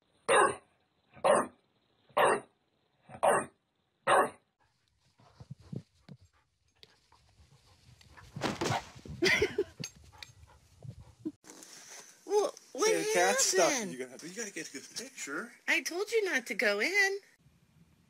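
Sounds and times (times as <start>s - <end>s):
dog barking: 0.3s - 0.6s, 1.2s - 1.6s, 2.2s - 2.5s, 3.1s - 3.5s, 4.1s - 4.4s.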